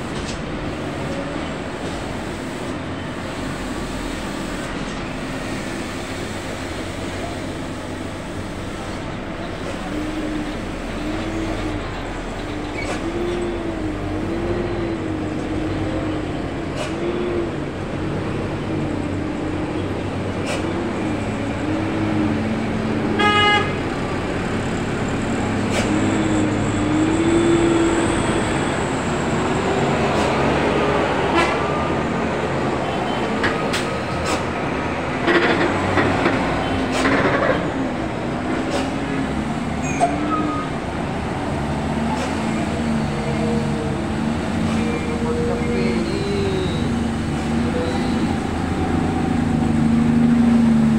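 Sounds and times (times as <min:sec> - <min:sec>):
truck diesel engines labouring: 0:00.0 - 0:50.9
truck horn toot: 0:23.1 - 0:23.9.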